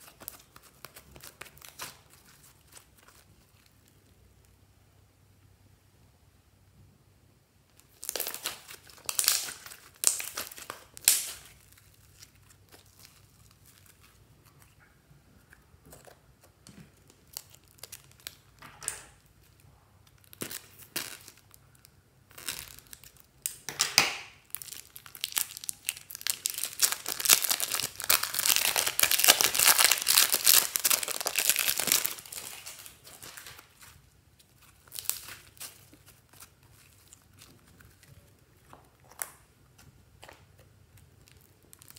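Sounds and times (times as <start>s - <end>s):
slime crackling: 0.0s - 4.2s, 7.7s - 14.7s, 15.4s - 18.6s, 24.4s - 41.9s
plastic bags rustling: 24.5s - 38.6s.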